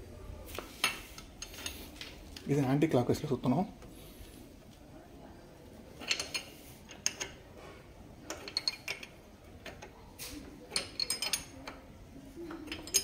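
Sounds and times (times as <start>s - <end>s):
metal spanner clinking: 6.0s - 7.4s, 8.3s - 9.9s, 10.7s - 11.8s, 12.5s - 13.0s.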